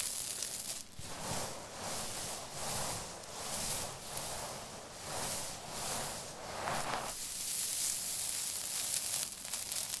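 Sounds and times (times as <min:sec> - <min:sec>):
soap crumbs crackling under hands: 0:00.0 - 0:02.0, 0:06.8 - 0:10.0
grains trickling: 0:00.0 - 0:10.0.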